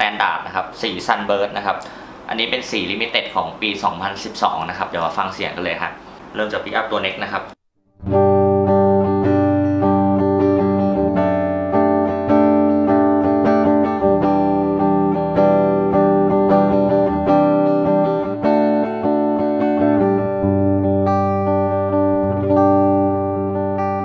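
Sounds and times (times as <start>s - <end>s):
clean electric guitar chords: 7.8s - 24.0s.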